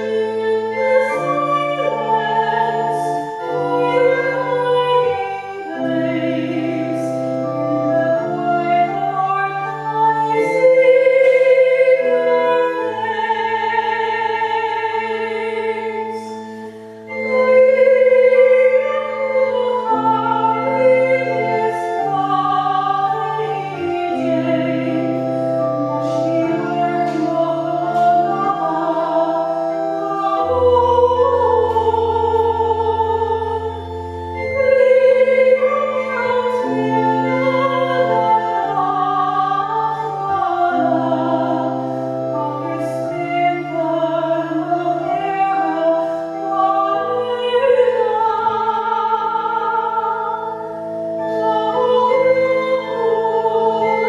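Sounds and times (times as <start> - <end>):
woman singing operatically: 0.0 - 16.3, 17.2 - 41.7, 42.4 - 50.6, 51.2 - 54.0
accompaniment chords and bass: 18.7 - 54.0.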